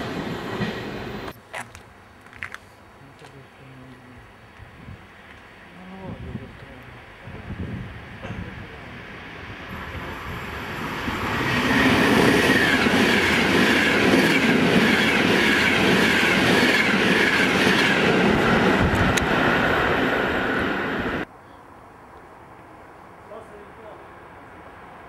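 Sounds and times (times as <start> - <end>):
electric train passing: 0.0 - 1.3, 7.0 - 21.3.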